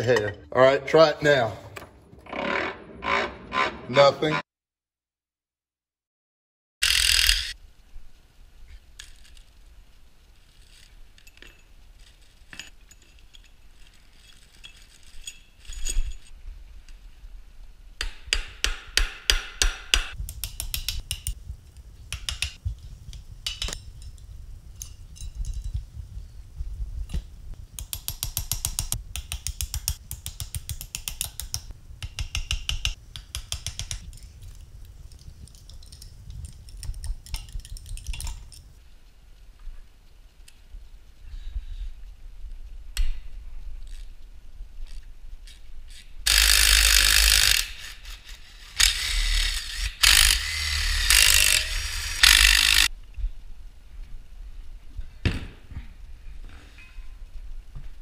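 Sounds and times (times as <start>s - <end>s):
metal tool clicks and knocks: 22.1s - 22.6s, 27.8s - 34.3s.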